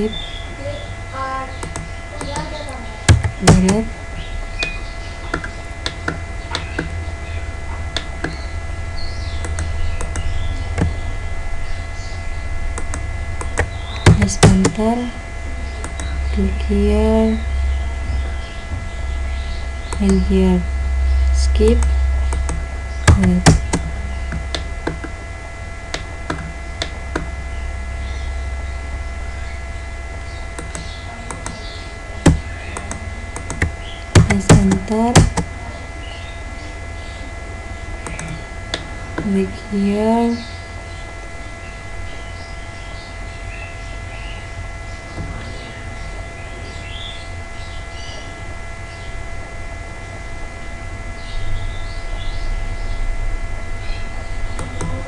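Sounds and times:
steady low hum: 0:00.0 - 0:55.0
computer keyboard clicks: 0:01.6 - 0:02.5
mouse clicks: 0:01.6 - 0:02.5, 0:09.4 - 0:11.0, 0:15.8 - 0:16.2.

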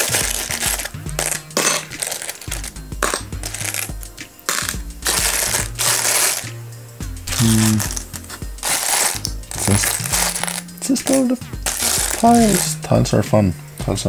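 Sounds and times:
plastic tiles clattering: 0:00.0 - 0:03.9
background music: 0:00.0 - 0:14.0.

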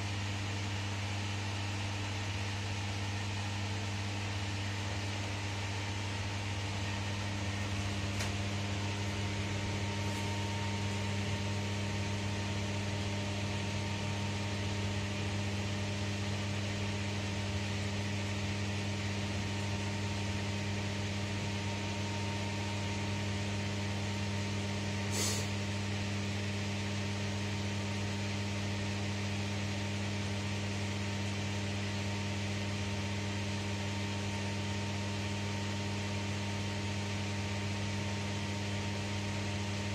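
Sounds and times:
machinery hum with hiss: 0:00.0 - 0:39.9
brief sharp hiss: 0:25.1 - 0:25.6.

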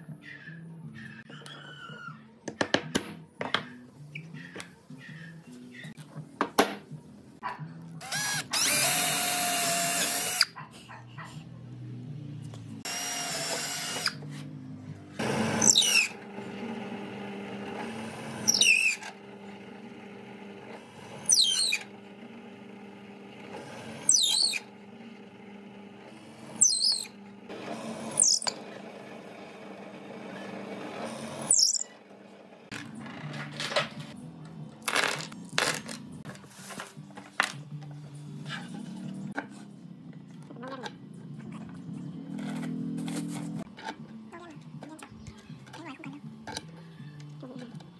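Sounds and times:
auger bit cutting wood: 0:08.0 - 0:10.5, 0:12.9 - 0:14.2, 0:15.2 - 0:24.8, 0:25.4 - 0:31.9
power drill boring into wood: 0:08.0 - 0:10.5, 0:12.9 - 0:14.2, 0:15.2 - 0:19.2, 0:20.7 - 0:22.0, 0:23.4 - 0:24.7, 0:27.6 - 0:28.7
drill press humming: 0:15.2 - 0:26.6, 0:27.2 - 0:32.7.

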